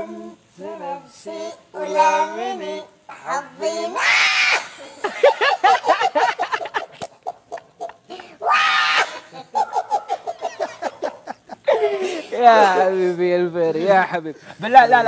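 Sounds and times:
pitched-up voice singing: 0.0s - 5.0s
men laughing: 4.0s - 13.1s, 13.7s - 15.0s.

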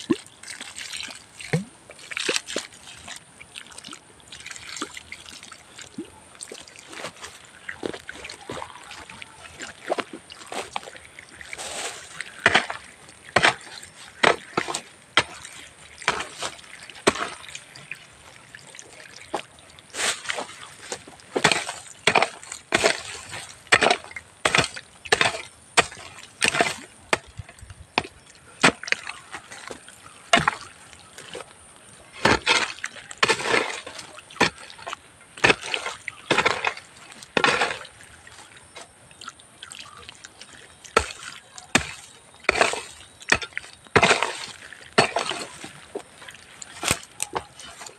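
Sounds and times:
hoe scraping soil: 11.5s - 17.4s, 20.0s - 27.3s, 32.1s - 34.7s, 35.4s - 38.0s, 41.8s - 47.9s.

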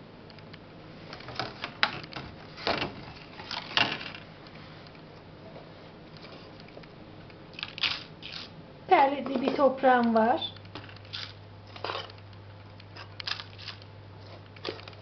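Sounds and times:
soft handling noise: 1.0s - 7.0s, 9.2s - 13.1s.

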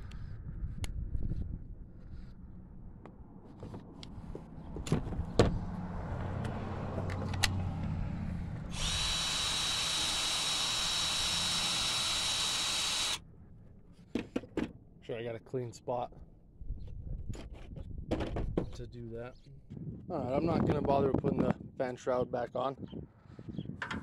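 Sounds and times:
cordless impact gun whine: 8.7s - 13.2s.

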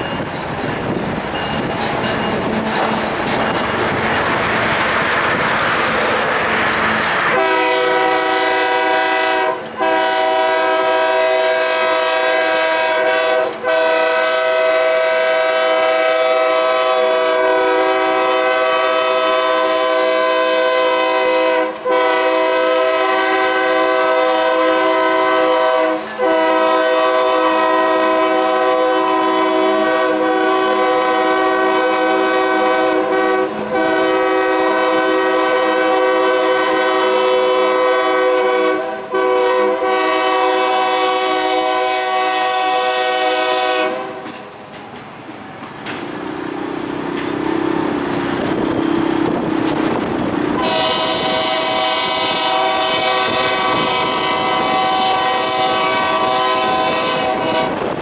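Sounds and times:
rushing noise: 0.0s - 8.6s
freight train passing: 0.0s - 58.0s
locomotive air horn chord: 7.1s - 44.4s, 50.5s - 57.9s.

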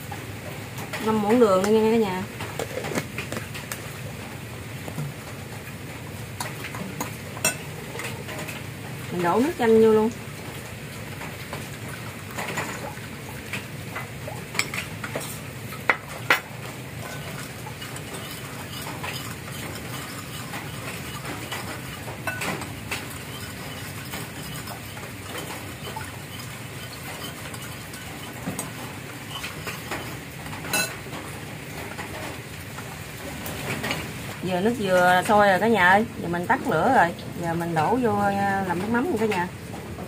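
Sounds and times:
spoon clinking in ceramic bowl: 30.7s - 31.0s.

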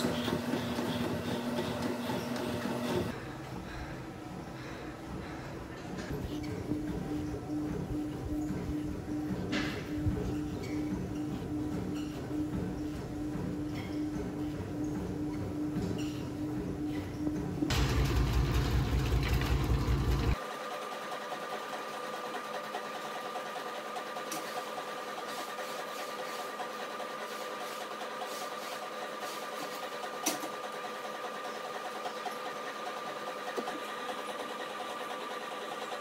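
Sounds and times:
machine buzzing hum: 0.0s - 5.5s, 6.2s - 20.5s
machine rhythmic rumble: 0.0s - 22.0s.

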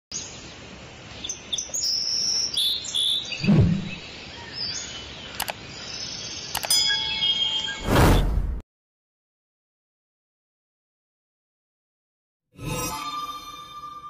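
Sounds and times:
birds chirping: 0.1s - 7.9s
sharp clicks: 5.3s - 5.6s, 6.5s - 6.8s.

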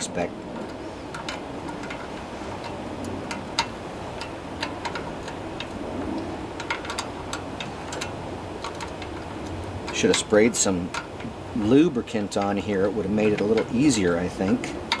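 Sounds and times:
wrench clicking on metal nut: 0.6s - 15.0s.

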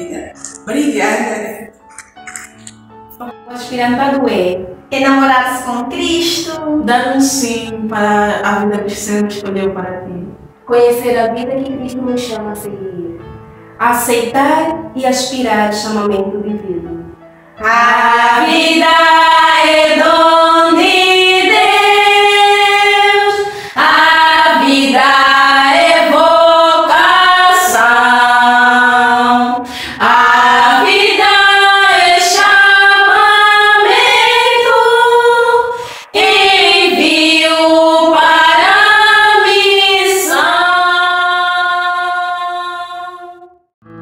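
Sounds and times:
women singing in harmony: 17.6s - 43.6s.

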